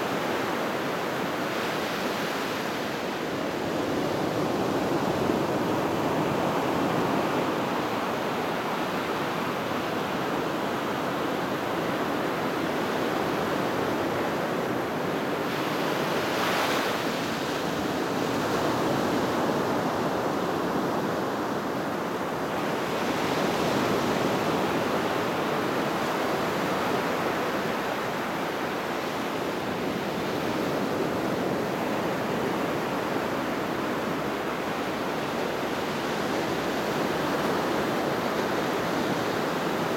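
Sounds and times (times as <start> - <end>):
surf washing up a beach: 0.0 - 39.9.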